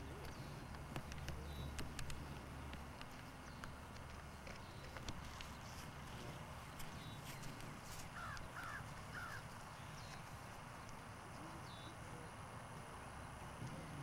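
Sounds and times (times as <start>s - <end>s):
low background noise: 0.0s - 14.0s
crow cawing: 8.2s - 9.5s.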